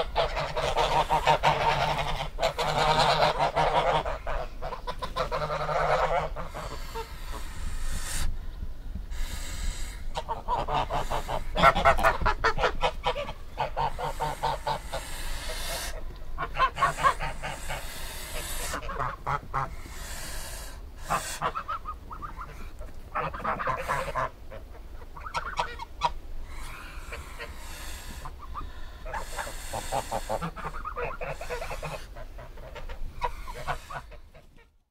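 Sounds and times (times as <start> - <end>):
geese honking: 0.0 - 8.3, 9.1 - 34.7.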